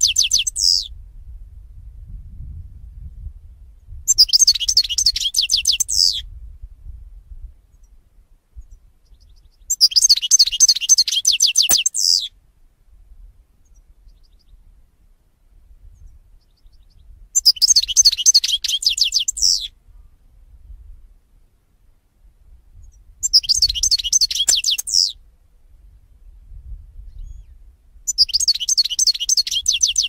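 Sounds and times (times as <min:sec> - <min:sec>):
bird twittering song: 0:00.0 - 0:00.9, 0:04.1 - 0:06.2, 0:08.6 - 0:12.3, 0:13.6 - 0:14.6, 0:15.9 - 0:19.7, 0:22.8 - 0:25.2, 0:27.1 - 0:30.0.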